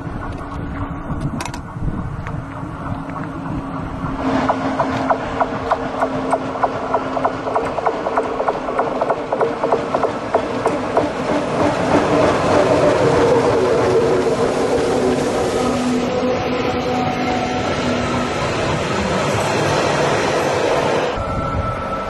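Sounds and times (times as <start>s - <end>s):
electric locomotive hum: 0.0s - 22.0s
train wheels rolling rumble: 0.0s - 22.0s
rapid even clicking: 4.4s - 12.0s.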